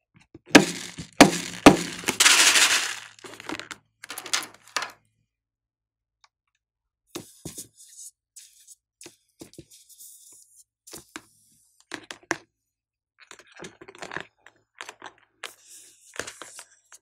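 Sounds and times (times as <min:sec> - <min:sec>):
balloon clicks and thuds: 0:00.6 - 0:02.7.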